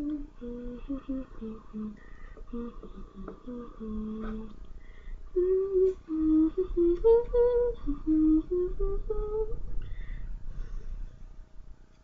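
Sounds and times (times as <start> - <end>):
woman humming a tune: 0.0 - 4.6, 5.3 - 9.7.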